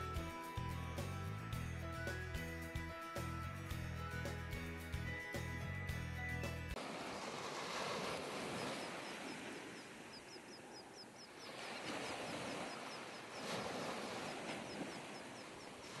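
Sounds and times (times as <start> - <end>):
surf washing on beach: 6.8 - 10.7, 11.4 - 16.0
bird chirping rapidly: 8.6 - 11.7.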